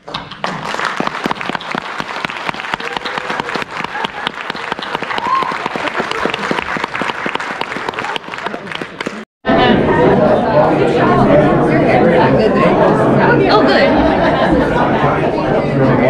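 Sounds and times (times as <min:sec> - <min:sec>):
audience clapping: 0:00.0 - 0:09.3.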